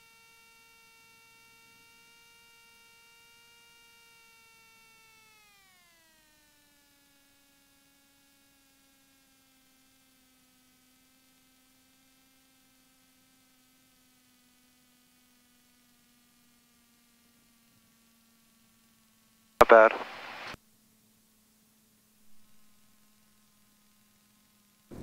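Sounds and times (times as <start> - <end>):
faint intercom whine: 19.6 - 20.6.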